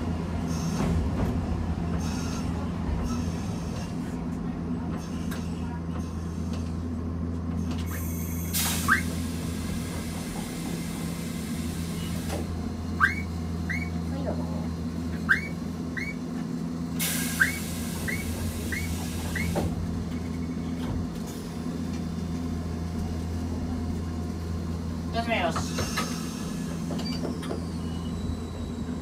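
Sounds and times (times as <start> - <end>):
hiss: 7.9 - 12.4, 17.0 - 19.6.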